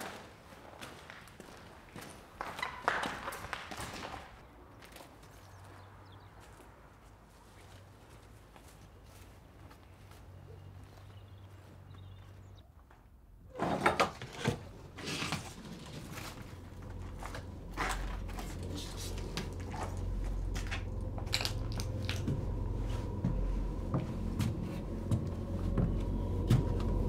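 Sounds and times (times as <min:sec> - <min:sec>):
footsteps on debris: 0:00.0 - 0:12.5, 0:14.9 - 0:27.0
crunching knocks: 0:15.5 - 0:27.0
low steady hum: 0:15.8 - 0:27.0.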